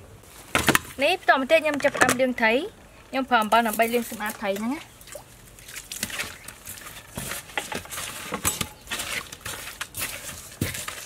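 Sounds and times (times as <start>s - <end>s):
hands scrubbing fish with salt: 3.6s - 11.0s.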